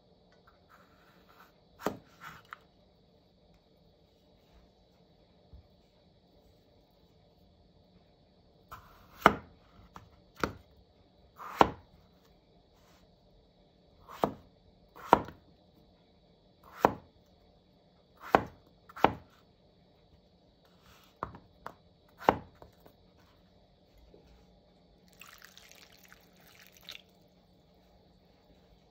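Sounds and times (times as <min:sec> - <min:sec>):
knife cutting potato on board: 0:01.0 - 0:02.6, 0:08.7 - 0:10.6, 0:11.4 - 0:11.8, 0:14.0 - 0:14.4, 0:15.0 - 0:15.4, 0:16.6 - 0:17.1, 0:18.2 - 0:19.4, 0:20.8 - 0:22.7.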